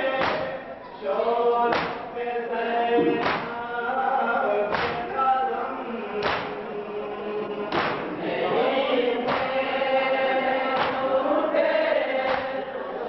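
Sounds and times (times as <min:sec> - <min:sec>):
men chanting in unison: 0:00.0 - 0:13.0
hands slapping chests: 0:00.2 - 0:00.5, 0:01.7 - 0:02.1, 0:03.1 - 0:03.6, 0:04.7 - 0:05.1, 0:06.2 - 0:06.6, 0:07.7 - 0:08.1, 0:09.3 - 0:09.6, 0:10.8 - 0:11.1, 0:12.3 - 0:12.6.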